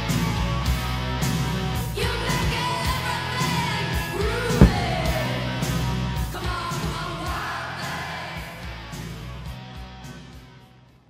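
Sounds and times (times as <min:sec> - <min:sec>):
singing over a steady beat: 0:02.0 - 0:08.7
sharp bang: 0:04.6 - 0:06.0.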